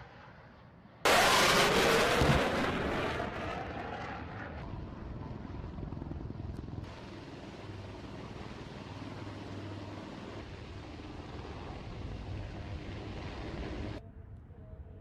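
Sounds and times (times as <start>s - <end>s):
explosion blast and rumble: 1.0s - 7.0s.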